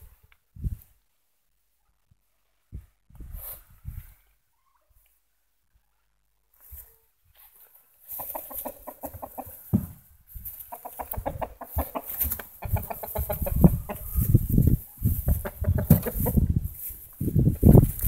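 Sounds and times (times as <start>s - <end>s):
rustling in hay: 6.6s - 18.0s
rabbit clucking honk-grunts: 8.2s - 9.7s, 10.7s - 14.4s.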